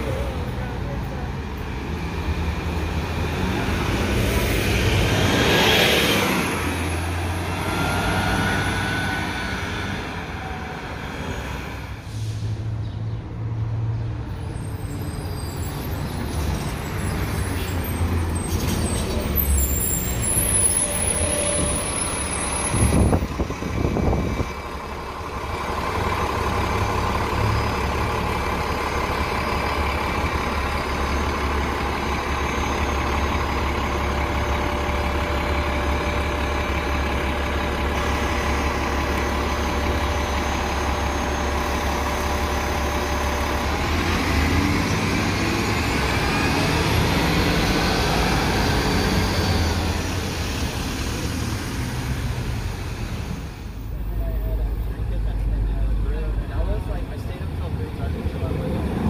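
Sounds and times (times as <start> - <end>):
bus engine idling: 0.0 - 5.2, 6.2 - 59.0
bus brakes squealing: 7.6 - 12.7, 14.3 - 23.6.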